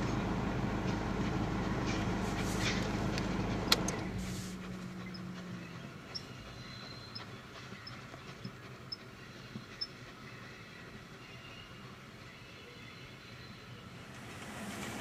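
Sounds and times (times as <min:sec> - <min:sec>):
steam train rumbling past: 0:13.8 - 0:15.0.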